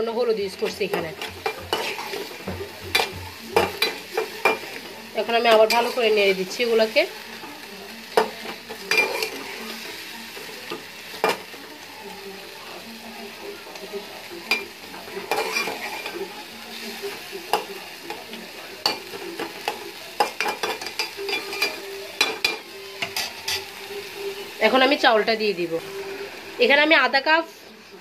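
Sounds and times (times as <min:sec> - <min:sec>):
food sizzling: 0:00.0 - 0:28.0
spatula scraping a metal pan: 0:00.8 - 0:04.6, 0:15.2 - 0:16.2.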